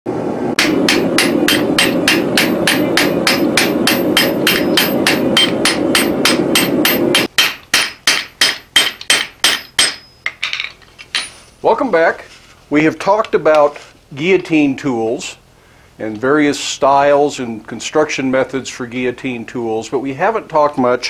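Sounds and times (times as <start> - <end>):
hammer striking metal: 0.6 - 11.4.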